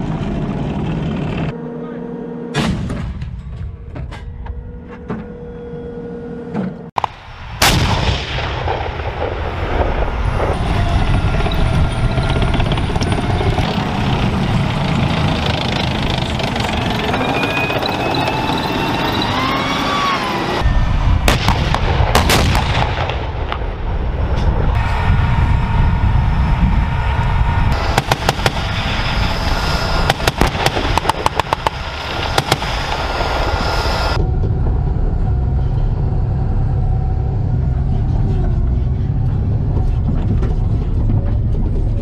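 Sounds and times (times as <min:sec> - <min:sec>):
loud continuous rumbling: 0:00.0 - 0:42.0
tank gun firing: 0:21.2 - 0:23.7, 0:27.8 - 0:28.8, 0:30.0 - 0:33.2.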